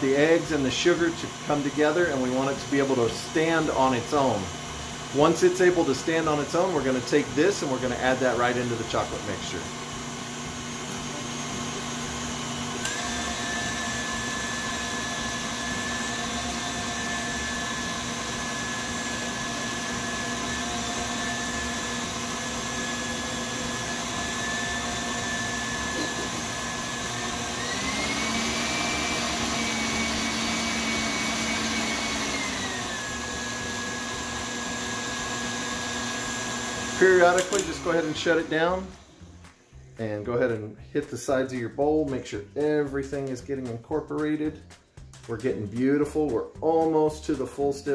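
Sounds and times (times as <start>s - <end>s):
stand mixer motor whining: 0.0s - 39.2s
whisk beating egg whites: 0.0s - 39.2s
mixer speed switch click: 37.3s - 37.8s.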